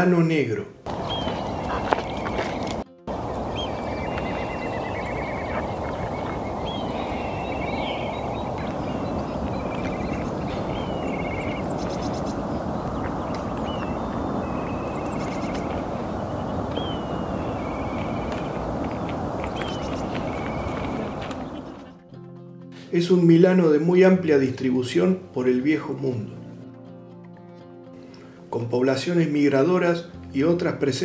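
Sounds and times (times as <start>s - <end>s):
low rushing noise: 0.9s - 21.8s.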